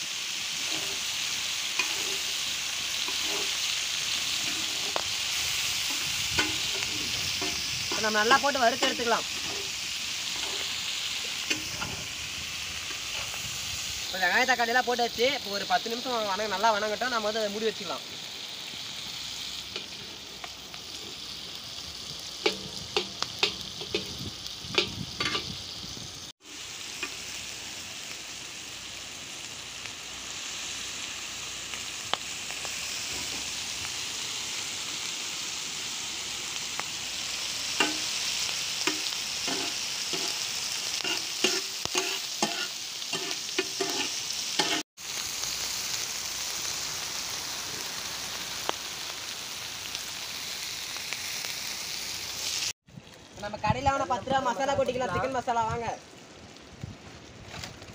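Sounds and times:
food sizzling on a pan: 0:00.0 - 0:57.9
metal spatula scraping pan: 0:00.6 - 0:03.7, 0:04.3 - 0:05.0, 0:08.8 - 0:10.7, 0:38.9 - 0:40.4, 0:41.0 - 0:44.8.

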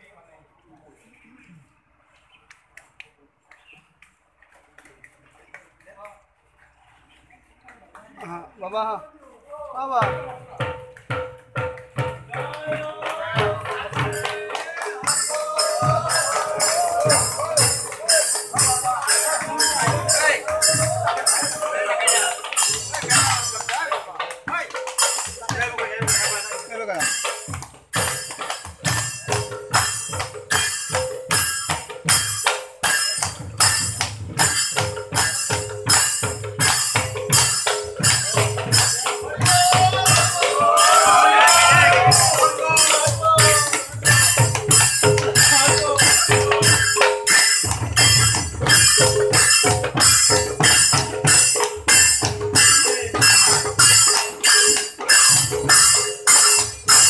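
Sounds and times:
low drum beat: 0:09.9 - 0:23.7
group of voices chanting: 0:12.4 - 0:23.4, 0:39.1 - 0:44.3
hand cymbals clashing: 0:13.3 - 0:57.0.

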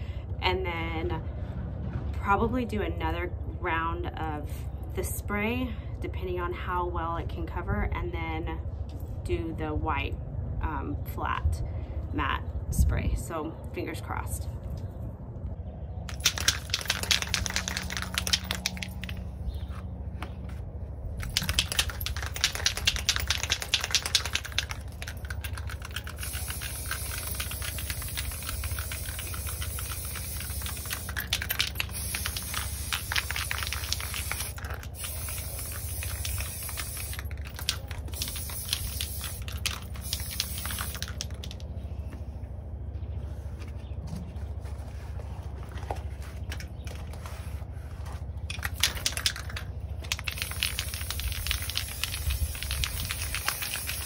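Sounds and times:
aerosol can spraying: 0:21.2 - 0:41.4, 0:50.1 - 0:54.0.

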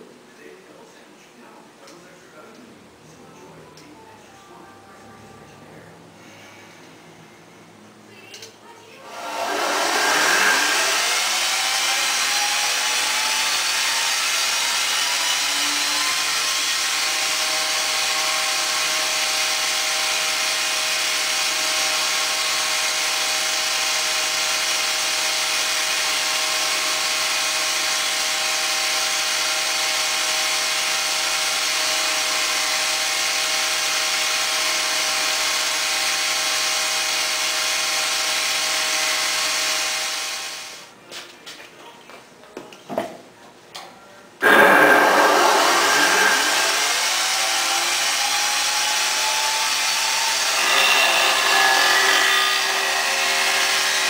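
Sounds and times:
spindle carver whining: 0:09.0 - 0:17.1, 0:44.4 - 0:54.0.

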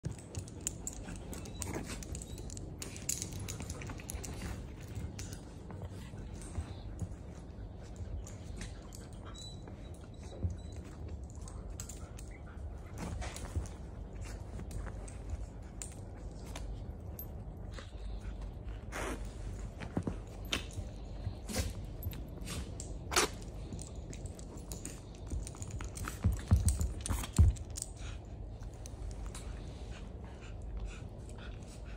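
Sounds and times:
dogs scuffling on sofa: 0:18.8 - 0:27.8.

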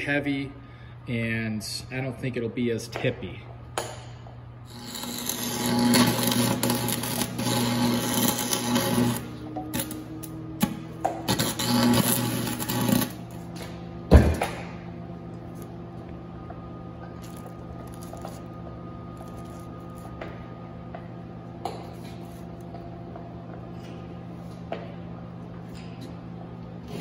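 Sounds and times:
steady low hum: 0:00.0 - 0:27.0
welder crackling and sizzling: 0:04.7 - 0:13.6.

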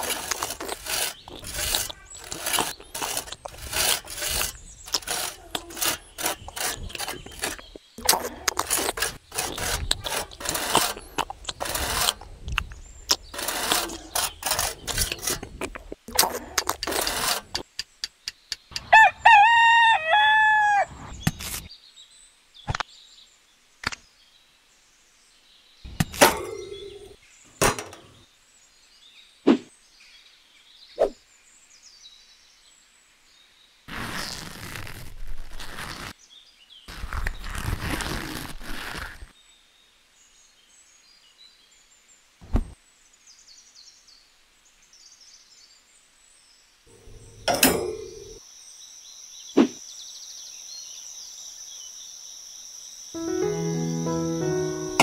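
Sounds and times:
trowel scraping wet cement: 0:00.0 - 0:17.7, 0:26.0 - 0:28.2, 0:46.9 - 0:48.4
rooster crowing: 0:18.8 - 0:20.9
knocks and handling noises: 0:25.9 - 0:28.2, 0:46.9 - 0:48.4.

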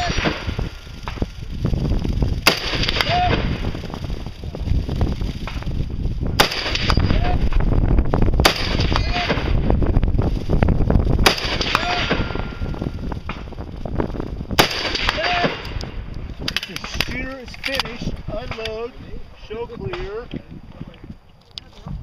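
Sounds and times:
rifle shots: 0:00.0 - 0:01.3, 0:02.4 - 0:03.8, 0:06.4 - 0:07.7, 0:08.4 - 0:09.7, 0:11.2 - 0:13.5, 0:14.6 - 0:15.8
low rumble: 0:00.0 - 0:21.2.

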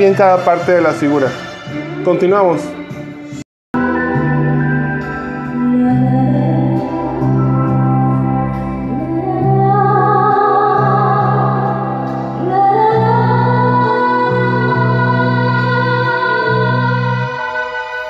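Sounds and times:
slow background music: 0:00.0 - 0:18.0
sung wavering melody: 0:03.8 - 0:18.0.

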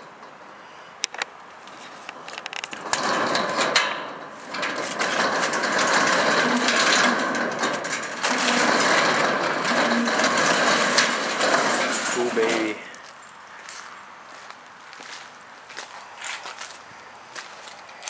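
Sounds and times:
metal roll-up door rattling: 0:01.8 - 0:13.1.

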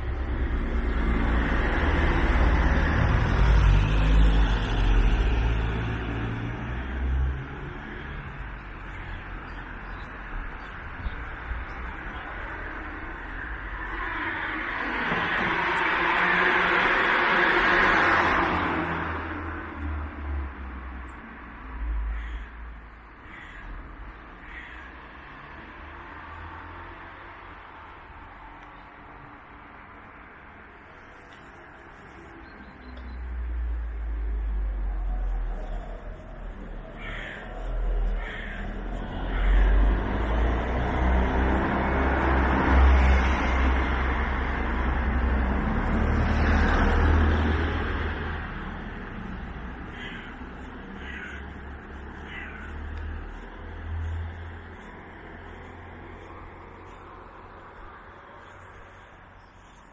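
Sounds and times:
cars passing: 0:00.0 - 0:59.9
crow cawing: 0:22.0 - 0:25.5, 0:34.3 - 0:41.3, 0:46.5 - 0:55.8
bird calling: 0:34.3 - 0:40.0, 0:49.5 - 0:53.6.

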